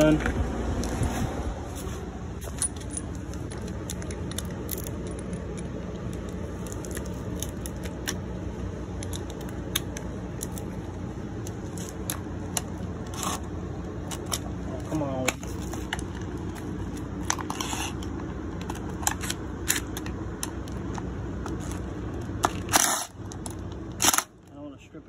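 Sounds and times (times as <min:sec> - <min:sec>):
low background rumble: 0:00.0 - 0:25.0
metal parts and tools clicking: 0:02.4 - 0:08.2.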